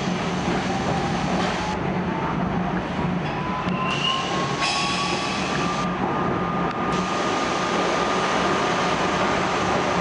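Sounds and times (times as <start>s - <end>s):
subway car rumbling: 0.0s - 10.0s
faint high squeal: 3.4s - 5.5s.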